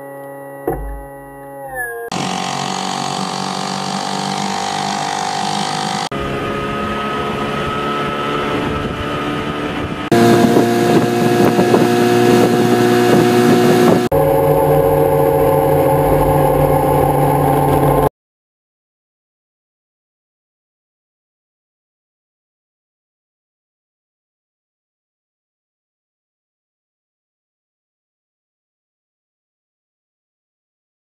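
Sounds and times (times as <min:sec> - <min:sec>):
outboard motor running: 0:02.1 - 0:18.1.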